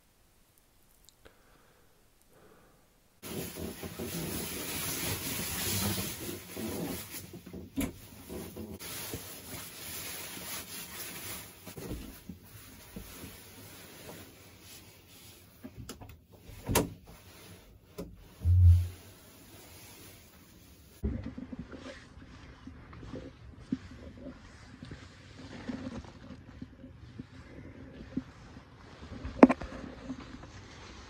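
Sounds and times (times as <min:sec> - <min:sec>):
clothes rustling: 0:03.2 - 0:21.0
low thump: 0:18.4 - 0:19.0.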